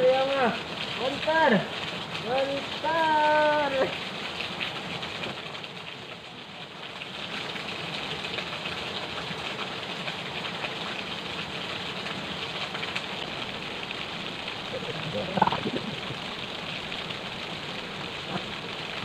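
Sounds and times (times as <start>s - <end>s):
rushing water hiss: 0.0s - 19.0s.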